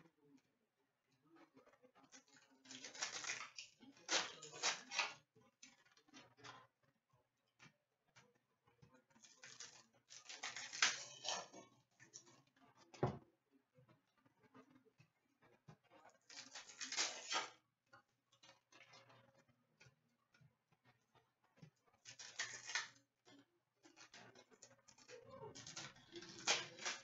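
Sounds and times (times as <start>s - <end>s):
cards rustling against each other: 2.2s - 5.2s, 9.2s - 11.5s, 16.3s - 17.5s, 22.1s - 23.0s, 23.9s - 27.0s.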